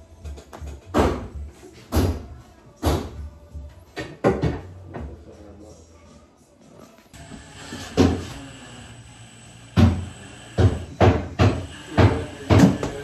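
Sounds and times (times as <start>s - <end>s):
knocks on wooden cabinetry: 10.6s - 13.0s.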